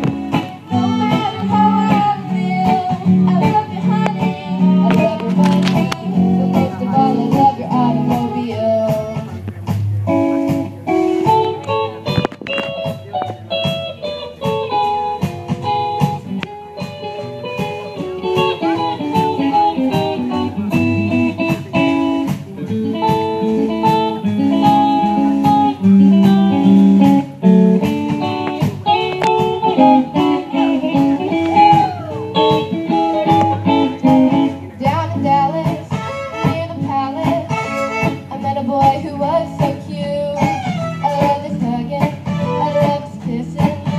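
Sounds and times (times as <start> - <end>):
sustained fiddle notes: 0.0 - 14.5, 24.2 - 38.7
plucked guitar: 0.0 - 43.9.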